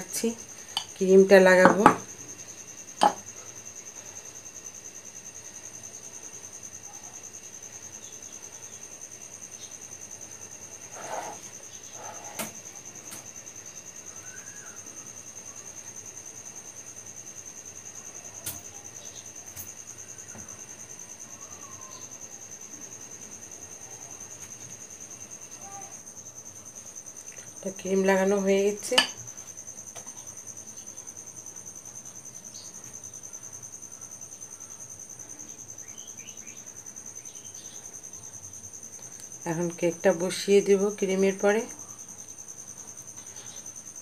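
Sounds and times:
cricket trilling: 0:00.0 - 0:44.0
spatula scraping a plate: 0:10.8 - 0:12.5.

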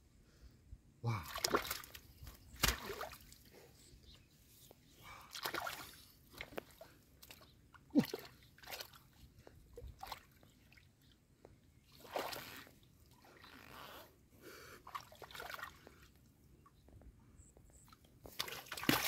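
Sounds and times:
hands sloshing in muddy water: 0:01.1 - 0:03.5, 0:05.2 - 0:10.9, 0:11.9 - 0:13.8, 0:14.9 - 0:16.2, 0:18.3 - 0:19.0
small splashes and gurgles: 0:01.1 - 0:03.5, 0:05.3 - 0:10.9, 0:11.8 - 0:13.8, 0:14.9 - 0:16.1, 0:18.3 - 0:19.0
short water plop: 0:01.2 - 0:03.4, 0:05.3 - 0:07.4, 0:18.3 - 0:19.0.

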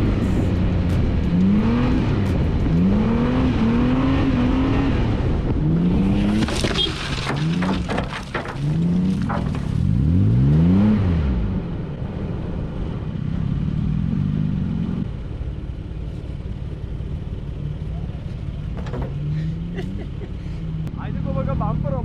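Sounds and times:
car engine accelerating: 0:00.0 - 0:22.0
sharp cracks and scrapes: 0:06.0 - 0:10.2.

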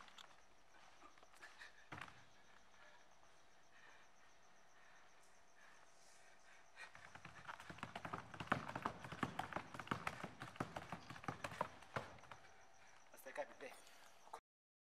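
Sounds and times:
sharp taps and knocks: 0:06.9 - 0:12.5.

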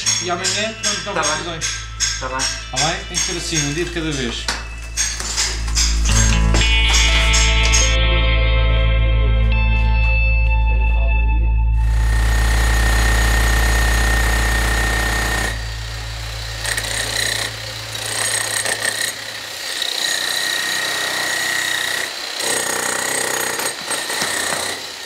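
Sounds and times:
demolition hammer chiselling stone: 0:12.0 - 0:25.0.

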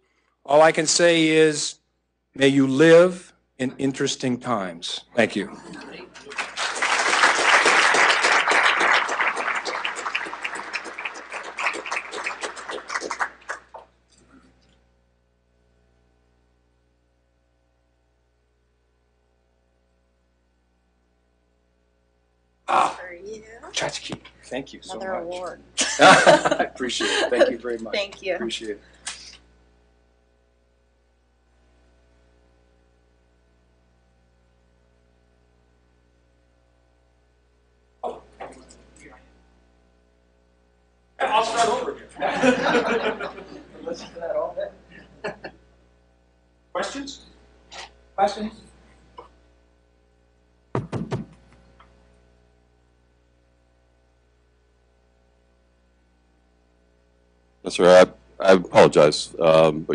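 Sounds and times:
low steady hum: 0:00.0 - 0:59.9
audience applauding: 0:06.1 - 0:13.9.

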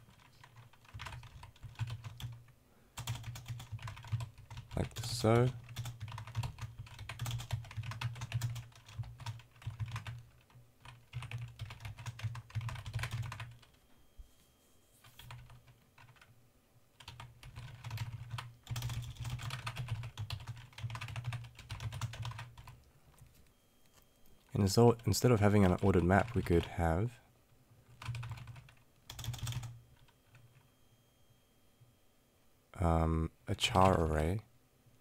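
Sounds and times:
keyboard typing clicks: 0:05.4 - 0:13.8, 0:28.0 - 0:30.6.

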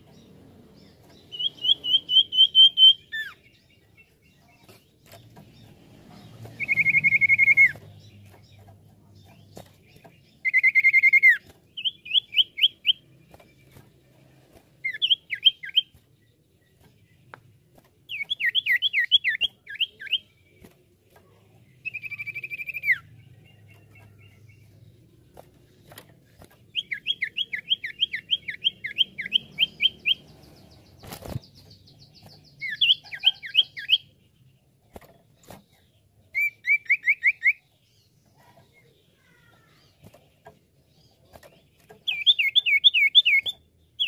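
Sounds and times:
bird whistling and chipping: 0:01.4 - 0:03.4, 0:06.6 - 0:07.8, 0:10.4 - 0:13.0, 0:36.3 - 0:37.6.

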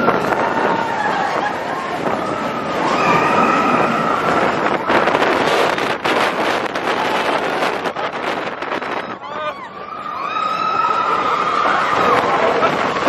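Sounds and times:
riders screaming: 0:00.0 - 0:05.1
roller coaster clattering on track: 0:00.0 - 0:13.0.

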